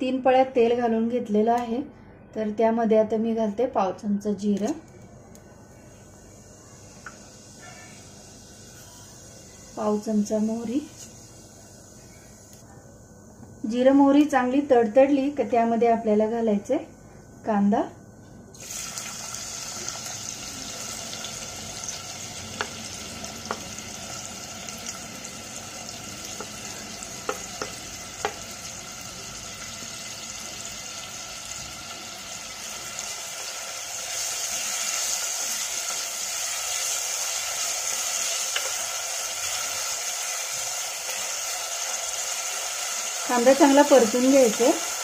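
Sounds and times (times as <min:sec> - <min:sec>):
onion sizzling in hot oil: 0:05.6 - 0:12.6, 0:18.5 - 0:45.0.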